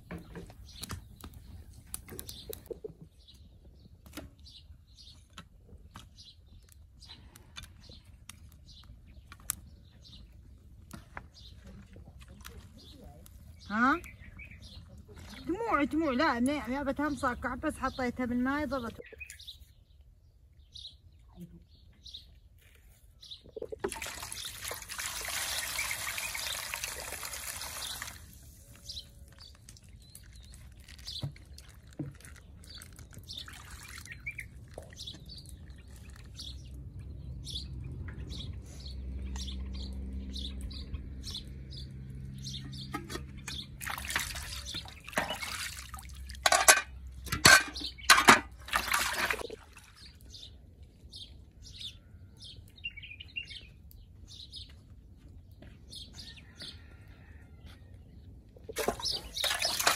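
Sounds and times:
small birds chirping: 0.0s - 48.7s, 49.4s - 59.9s
water sloshing in a basin: 10.6s - 17.8s, 23.5s - 37.0s, 42.2s - 50.6s, 58.6s - 59.9s
water pouring: 23.6s - 36.7s, 42.9s - 50.3s, 58.7s - 59.9s.

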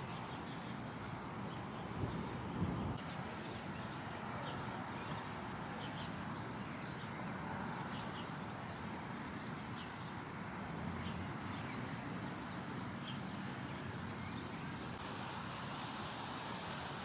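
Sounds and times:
city traffic hum: 0.0s - 17.0s.

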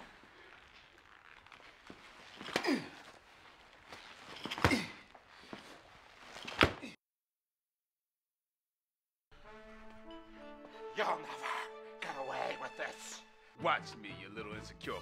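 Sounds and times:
person yelling: 11.0s - 13.2s.

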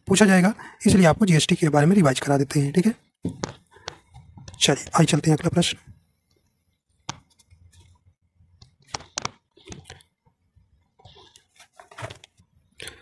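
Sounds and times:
faint clicks and taps: 3.2s - 5.5s, 6.2s - 11.5s.

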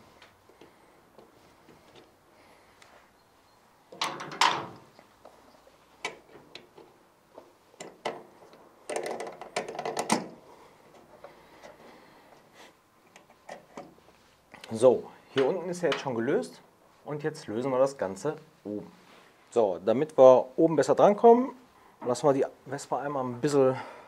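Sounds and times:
tools clattering: 3.9s - 5.0s, 7.8s - 10.4s.

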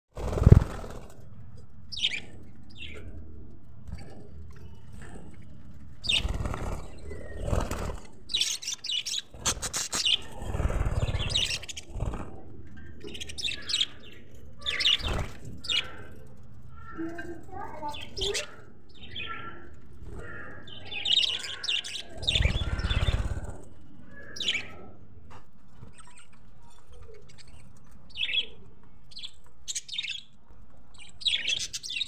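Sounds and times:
budgerigars chirping: 20.2s - 23.4s.

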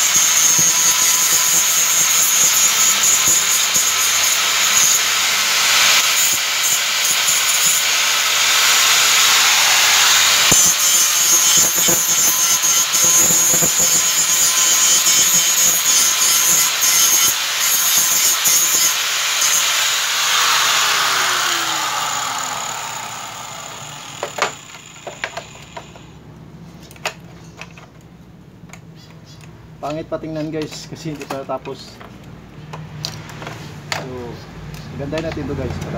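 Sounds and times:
angle grinder grinding metal: 0.0s - 26.1s
grinder winding down: 0.0s - 26.1s
sharp clicks of parts handled: 26.8s - 34.1s.

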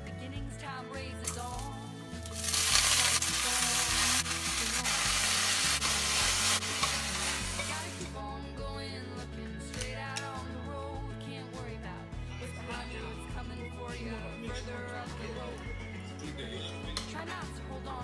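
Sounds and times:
soft background music: 0.0s - 18.0s
greens sizzling in hot oil: 1.5s - 8.2s.

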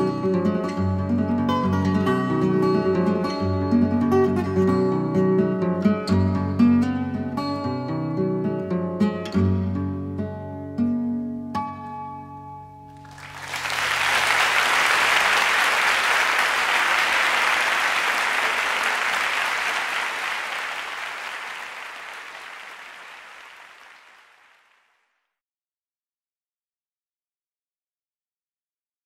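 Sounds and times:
acoustic guitar: 0.0s - 13.3s
audience applauding: 13.0s - 24.9s.

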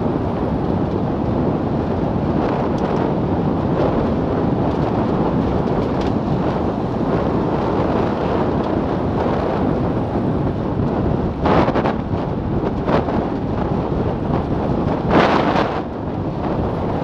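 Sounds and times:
tyre and road noise: 0.0s - 17.0s
wind on microphone: 0.0s - 17.0s.

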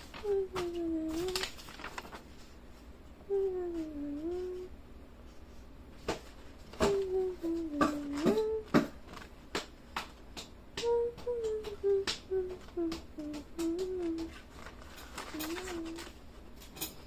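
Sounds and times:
person humming softly: 0.1s - 1.8s, 3.2s - 4.8s, 6.7s - 8.9s, 10.8s - 14.4s, 15.2s - 16.2s.

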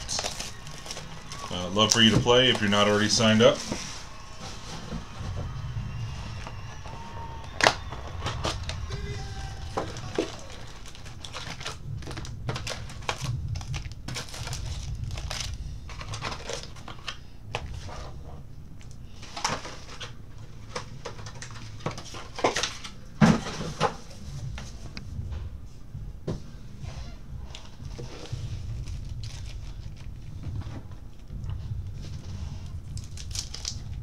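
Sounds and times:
foil packs crinkling: 0.0s - 18.1s, 27.5s - 30.4s, 32.5s - 34.0s
low steady hum: 0.0s - 34.0s.

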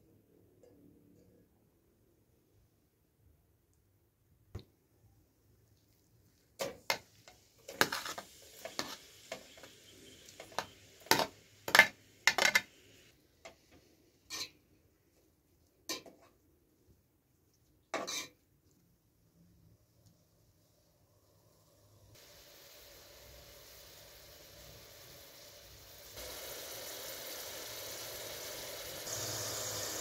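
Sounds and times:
onions sizzling in oil: 6.9s - 13.1s, 21.5s - 30.0s.

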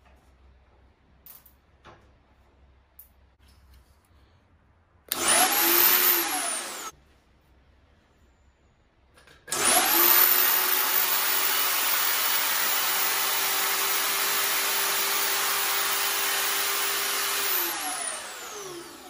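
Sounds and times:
drill whining: 5.1s - 7.0s, 9.5s - 19.0s.

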